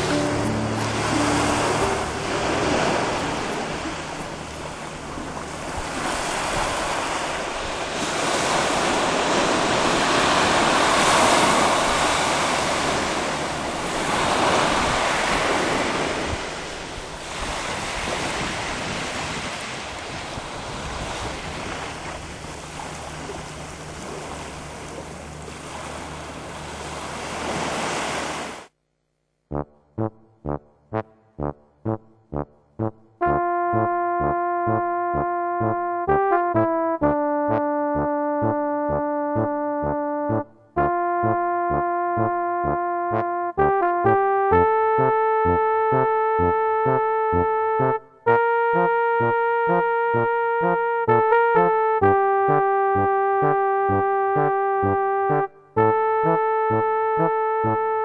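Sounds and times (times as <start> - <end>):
small waves washing on sand: 5.4 - 28.6
wind buffeting microphone: 14.0 - 22.4.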